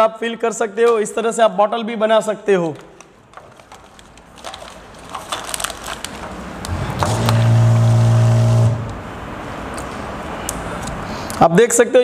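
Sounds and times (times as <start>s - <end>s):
plastic pouch rustling: 2.7s - 7.4s
filling machine humming: 6.7s - 9.1s.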